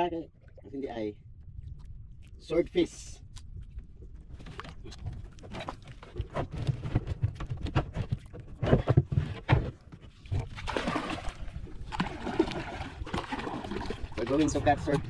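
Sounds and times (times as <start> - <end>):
steady low rumble: 0.0 - 7.4.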